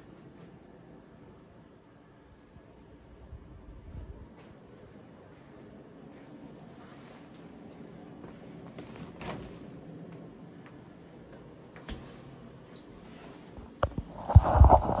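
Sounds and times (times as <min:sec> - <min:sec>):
brief high squeak: 0:12.7 - 0:13.1.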